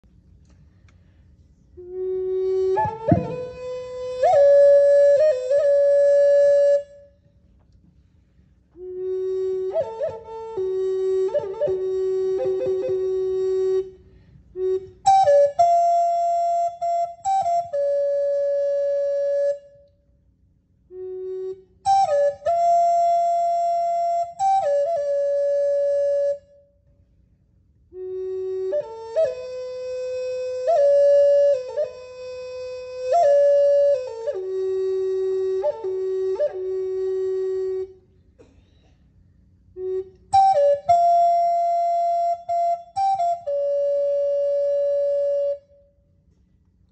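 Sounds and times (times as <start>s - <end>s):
wooden flute melody: 1.0s - 20.1s, 20.8s - 27.0s, 27.8s - 38.2s, 39.7s - 46.0s.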